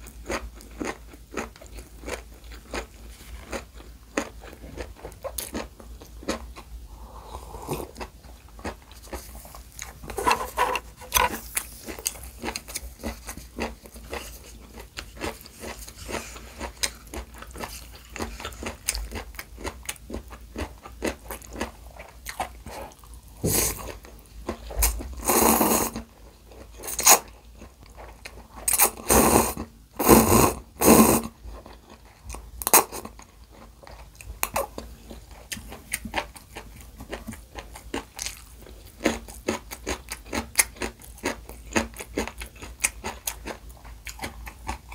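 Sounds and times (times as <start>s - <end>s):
chewing with wet clicks: 0.0s - 6.7s, 11.5s - 23.2s, 31.5s - 44.9s
noodle slurping: 7.0s - 8.1s, 25.2s - 26.0s, 28.7s - 31.3s.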